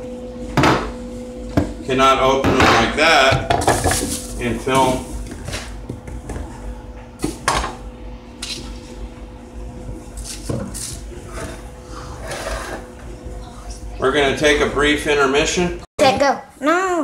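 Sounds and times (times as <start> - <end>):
kitchenware knocking and clattering: 2.4 - 5.0, 7.3 - 7.8.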